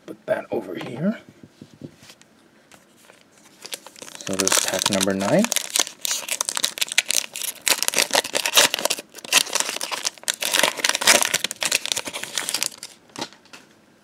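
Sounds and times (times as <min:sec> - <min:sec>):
foil wrapper crinkling and tearing: 0:03.5 - 0:13.3.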